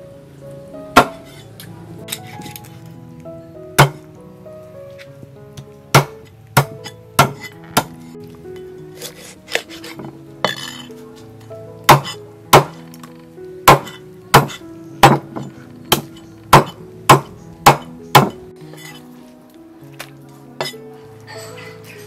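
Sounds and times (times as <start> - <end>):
soft background music: 0.0 - 22.0
cleaver chopping on wooden block: 3.8 - 4.0, 6.0 - 7.9, 11.9 - 12.8, 13.7 - 18.4.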